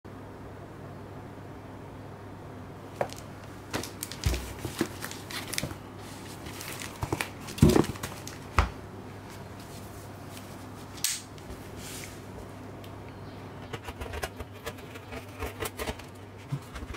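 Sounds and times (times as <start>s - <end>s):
low steady hum: 0.1s - 16.9s
cardboard box being handled: 3.8s - 8.4s.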